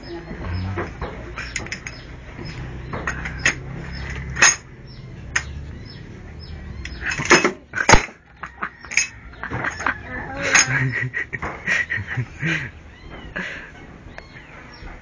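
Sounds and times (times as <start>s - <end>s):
light metal clicks and clinks: 1.4s - 2.1s, 8.9s - 9.2s.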